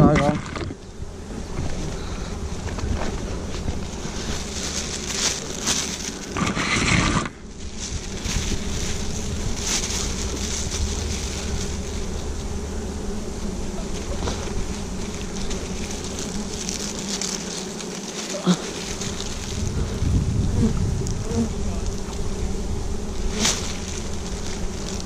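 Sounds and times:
bees buzzing: 0.0s - 25.0s
rustling: 0.0s - 25.0s
wind on microphone: 6.4s - 11.7s, 19.0s - 23.1s.

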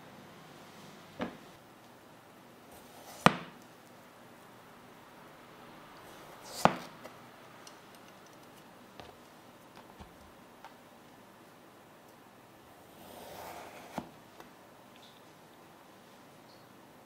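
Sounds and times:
knife slicing scrape: 2.8s - 3.3s, 13.0s - 14.1s.

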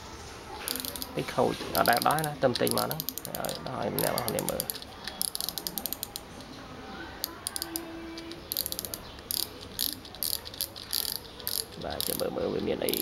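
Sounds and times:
fishing reel ratcheting clicks: 0.7s - 1.1s, 1.7s - 6.3s, 7.2s - 12.3s.

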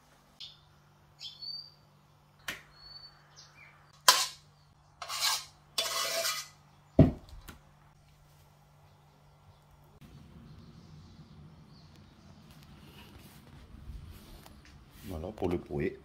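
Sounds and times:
spoon scraping metal pot: 4.0s - 4.4s, 5.0s - 6.6s.

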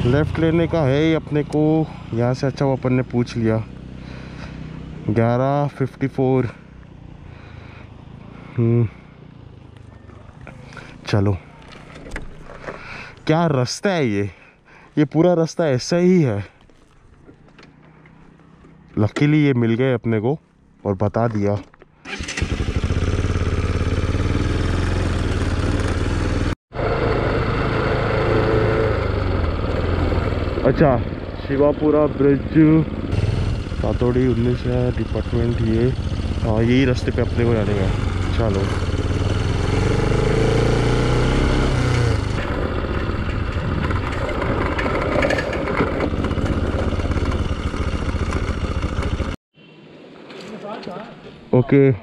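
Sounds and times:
motorcycle engine running: 0.0s - 13.0s, 22.1s - 49.4s
road rumble on gravel: 0.0s - 51.5s
wind: 0.0s - 52.0s.

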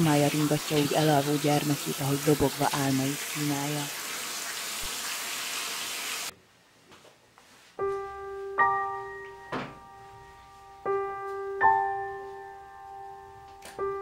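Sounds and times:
running water: 0.0s - 6.3s
soft piano chords: 7.8s - 14.0s.

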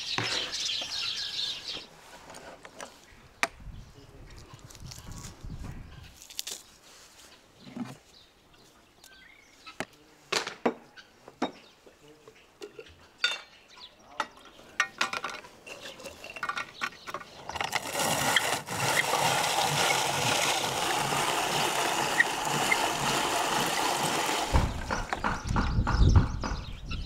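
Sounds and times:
rotary drum grater rasping: 17.5s - 25.4s.

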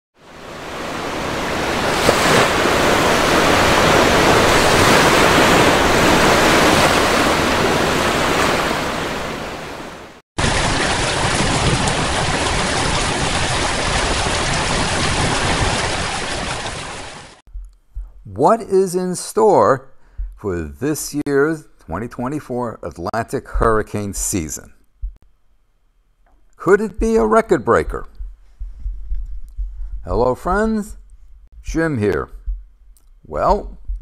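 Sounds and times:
ocean waves washing: 0.2s - 17.4s.

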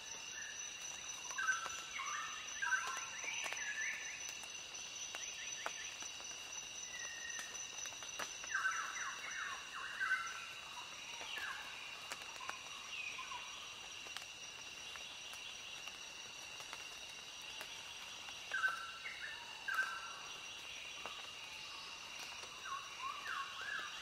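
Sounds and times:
high-pitched insect trill: 0.0s - 24.0s.

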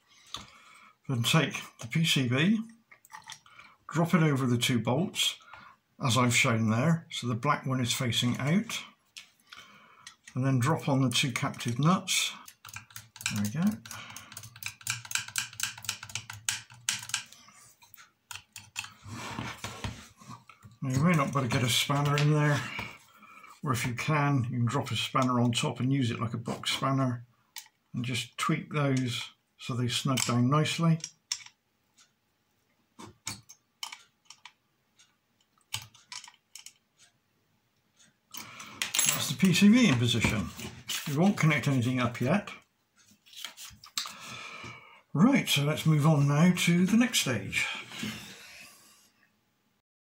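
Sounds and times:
screwdriver and nuts clicking: 12.4s - 19.0s, 31.0s - 31.6s, 33.2s - 34.6s, 35.7s - 36.8s.

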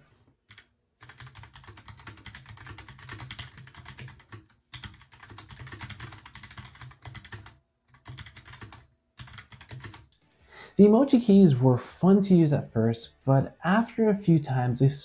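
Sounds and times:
fast typing on mechanical keyboard: 0.5s - 10.1s.

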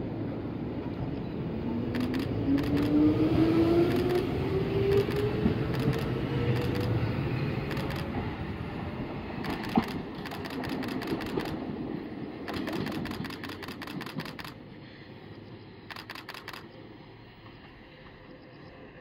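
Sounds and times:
electric train running: 0.8s - 14.6s, 15.4s - 19.0s
rapid even clicking: 2.0s - 2.9s, 7.7s - 8.1s, 9.4s - 11.6s, 12.5s - 14.6s, 15.9s - 16.7s.

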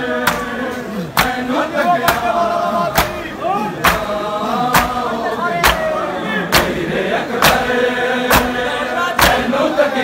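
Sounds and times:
men beating their chests: 0.0s - 9.6s
men chanting: 0.0s - 10.0s.

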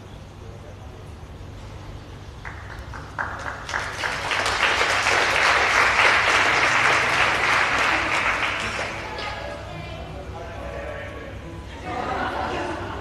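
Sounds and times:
audience applauding: 2.4s - 9.2s.

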